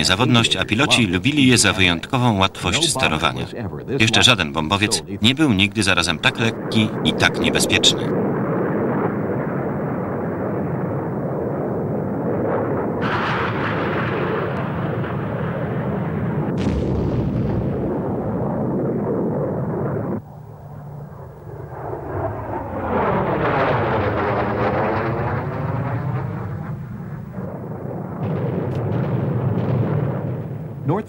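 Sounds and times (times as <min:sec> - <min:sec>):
steady jet roar: 0:00.0 - 0:15.0
sudden jet blasts: 0:00.0 - 0:31.0
jet aircraft flying past: 0:18.3 - 0:28.2.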